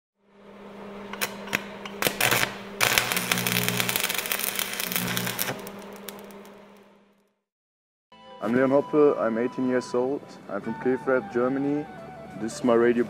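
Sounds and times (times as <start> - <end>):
deep drone: 0.2 - 6.9
steady low hum: 0.2 - 6.9
glitchy static crackles: 1.2 - 6.9.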